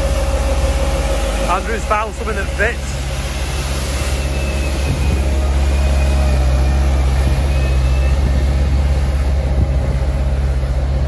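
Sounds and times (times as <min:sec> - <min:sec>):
diesel engine running: 0:00.0 - 0:11.0.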